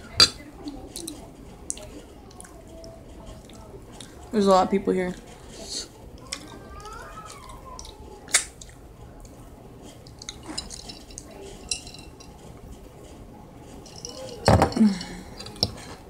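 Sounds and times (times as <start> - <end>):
cutlery clinking on plate: 10.1 - 12.4, 13.7 - 16.0.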